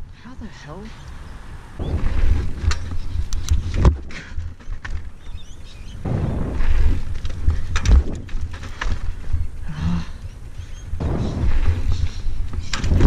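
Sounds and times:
bike tyres rolling on concrete: 0:01.0 - 0:13.0
wind rumble on microphone: 0:01.4 - 0:13.0
sharp knocks from bike: 0:06.0 - 0:09.4.

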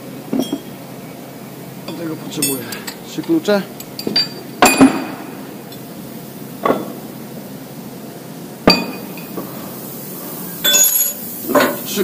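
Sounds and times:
wrenches clinking on metal: 0:01.9 - 0:03.0, 0:10.6 - 0:11.2.

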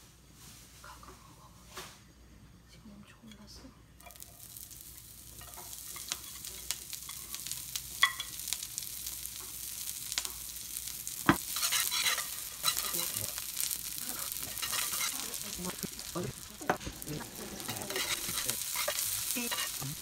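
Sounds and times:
leek sizzling in a frying pan: 0:04.0 - 0:20.0
spatula stirring with clicks and scrapes: 0:04.0 - 0:20.0.

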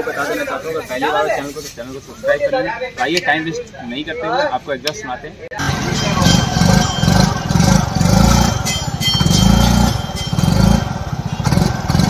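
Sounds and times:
scooter engine exhaust: 0:05.6 - 0:12.0.

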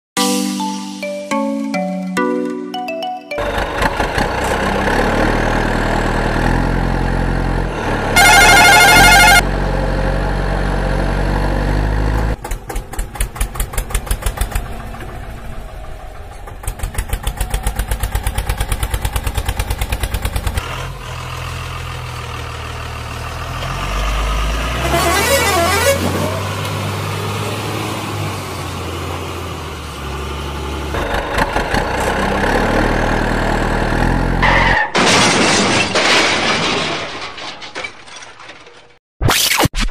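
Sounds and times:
tractor engine chugging: 0:03.4 - 0:06.3, 0:12.4 - 0:21.0, 0:31.0 - 0:32.9
truck engine running: 0:03.4 - 0:34.5
loud horn blast: 0:07.8 - 0:09.5, 0:24.7 - 0:26.4
warbling horn-like sound: 0:08.2 - 0:09.4.

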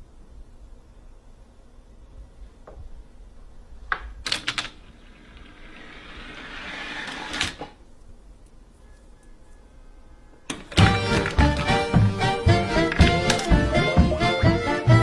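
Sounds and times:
toy train rattling on plastic track: 0:04.3 - 0:07.7
small parts knocking and clicking: 0:12.9 - 0:13.7.

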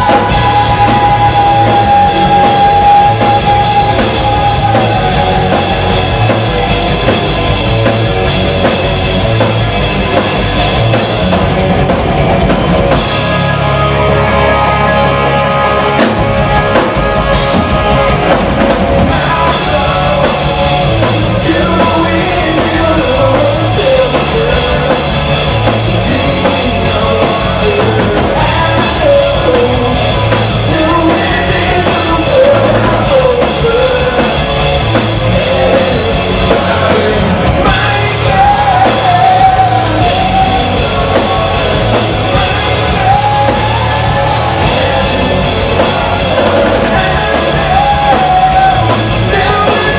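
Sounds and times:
lead singer vocals: 0:00.0 - 0:07.2, 0:19.0 - 0:49.9
bass guitar: 0:00.0 - 0:49.9
drum kit: 0:00.0 - 0:49.9
electric guitars: 0:00.0 - 0:49.9.

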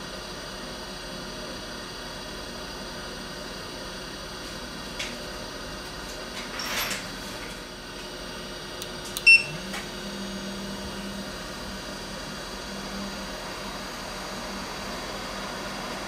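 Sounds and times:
fan hum: 0:00.0 - 0:16.0
rework station beep: 0:09.2 - 0:09.7.

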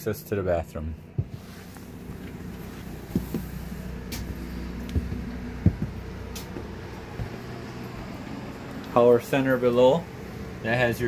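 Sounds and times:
low mechanical hum: 0:00.0 - 0:11.0
footsteps on trailer floor: 0:01.1 - 0:09.0.

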